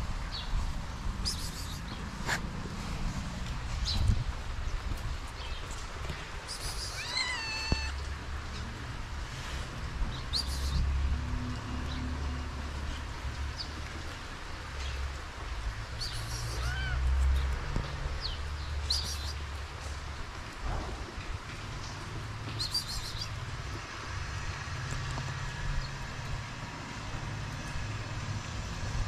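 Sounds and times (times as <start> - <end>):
kitten meowing: 6.6 - 8.0, 16.5 - 17.1.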